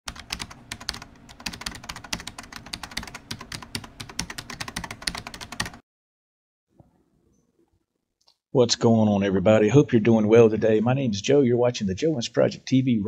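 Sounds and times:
keyboard typing: 0.1 - 5.8.

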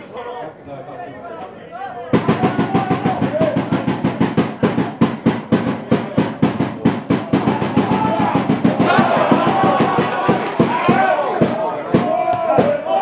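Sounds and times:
drum beating fast: 2.1 - 13.0
spectators shouting: 2.2 - 4.3, 7.1 - 13.0.

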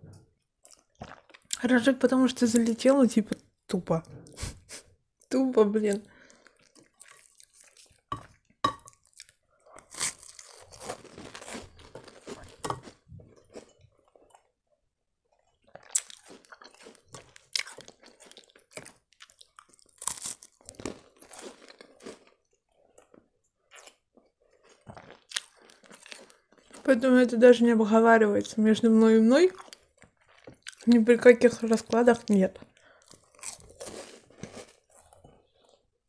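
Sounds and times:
biscuits crunching while chewed: 0.6 - 1.6, 6.0 - 27.2, 29.5 - 31.1, 31.8 - 36.0.

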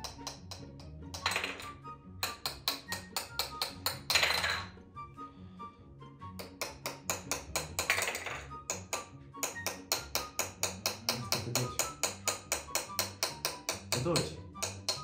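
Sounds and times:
background music with fast beat: 0.0 - 4.7, 6.3 - 15.0.

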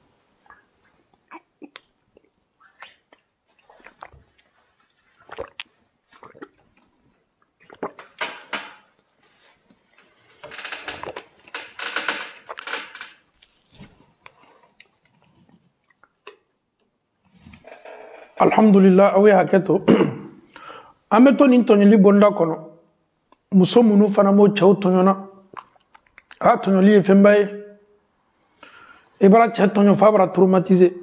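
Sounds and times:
man swallowing liquid: 0.5 - 9.1, 13.4 - 16.8.

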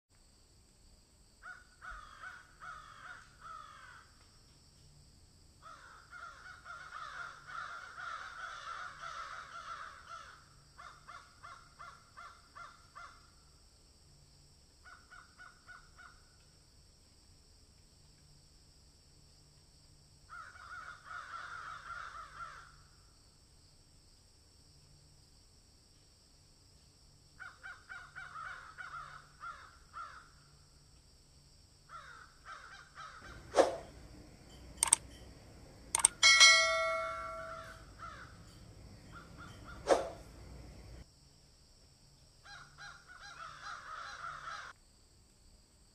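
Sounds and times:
harsh bird cawing: 1.4 - 4.2, 5.6 - 13.2, 20.3 - 22.8, 27.4 - 30.4, 31.9 - 41.0, 42.5 - 44.7
faint steady hum: 33.2 - 41.0.

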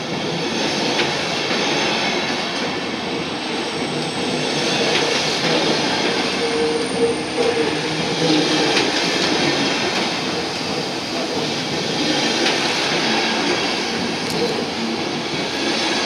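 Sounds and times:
train wheels rumbling on rails: 0.0 - 16.0
wheel squeal: 3.6 - 9.2.

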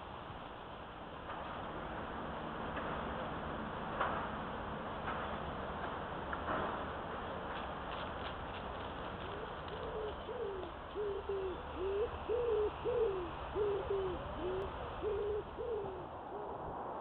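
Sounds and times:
bird cooing: 9.2 - 16.7.

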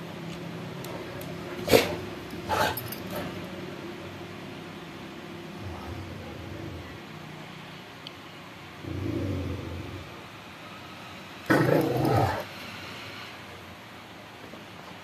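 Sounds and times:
dog growling low: 1.6 - 3.3, 5.6 - 7.1, 8.8 - 10.2, 11.5 - 12.5.

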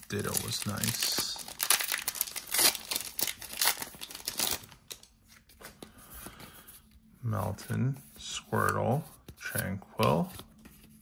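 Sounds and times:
foil wrapper tearing and crinkling: 0.0 - 5.1.

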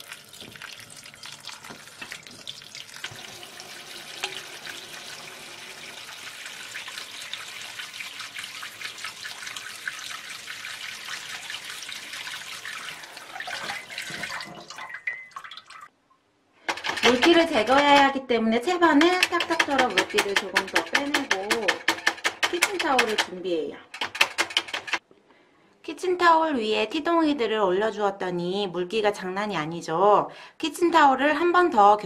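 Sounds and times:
tap water running into sink: 0.0 - 15.9, 19.0 - 25.0.

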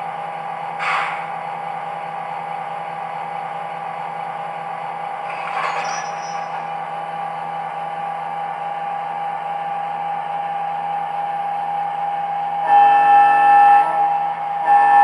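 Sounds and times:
diesel locomotive idling through speaker: 0.0 - 15.0
locomotive horn blasts: 12.6 - 15.0.

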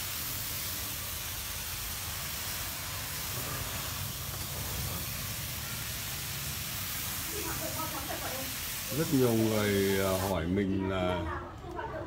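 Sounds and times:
steady hiss: 0.0 - 10.5.

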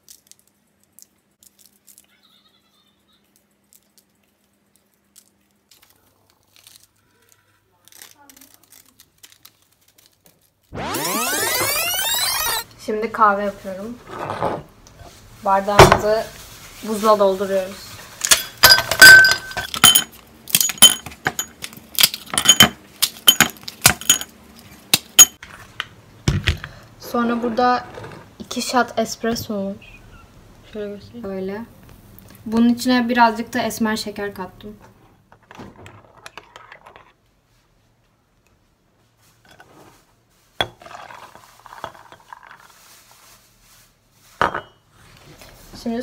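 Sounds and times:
ice cubes clinking in glass: 18.2 - 24.3
spoon clinking against cup: 23.3 - 24.3.

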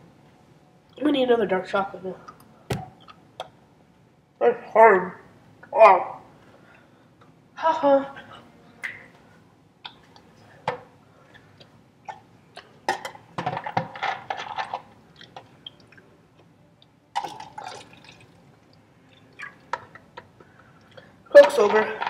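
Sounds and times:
liquid sloshing in bottle: 17.2 - 18.4.

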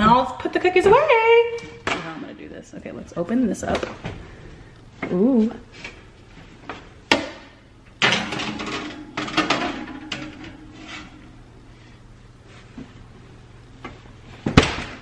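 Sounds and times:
baking sheet scraping on oven rack: 8.2 - 12.9.

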